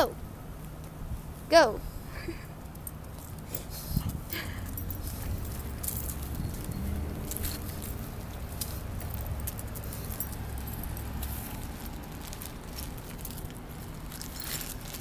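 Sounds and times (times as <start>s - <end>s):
small metal pieces jingling: 4.3s - 15.0s.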